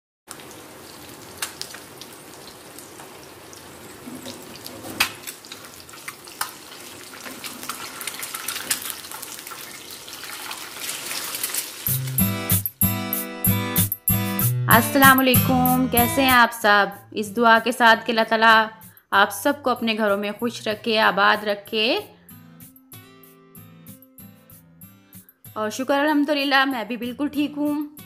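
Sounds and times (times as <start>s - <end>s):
eggs sizzling in oil: 0.3s - 12.2s
music: 11.9s - 28.0s.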